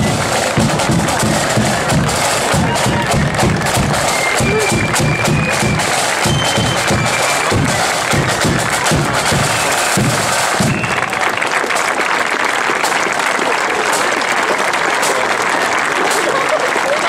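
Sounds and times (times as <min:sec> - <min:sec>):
bass drum beats: 0:00.0 - 0:11.3
crowd applause: 0:00.0 - 0:17.0
marching band playing: 0:00.0 - 0:17.0.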